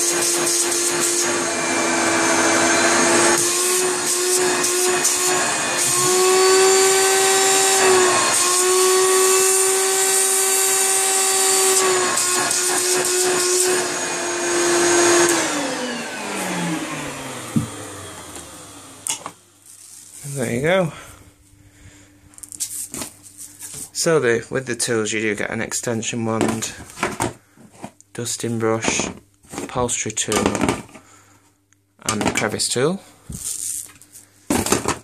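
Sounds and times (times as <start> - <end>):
vacuum cleaner running: 0.0 - 19.6, 34.5 - 35.0
motor winding down whine: 0.7 - 19.3.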